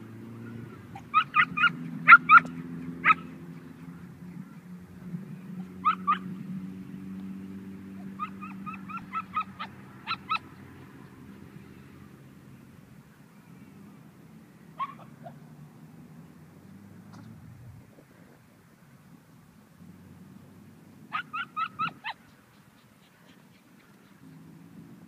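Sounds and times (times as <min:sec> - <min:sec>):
dogs yipping: 0:00.5 - 0:03.9, 0:05.6 - 0:06.3, 0:08.0 - 0:10.6, 0:14.8 - 0:15.4, 0:21.1 - 0:24.4.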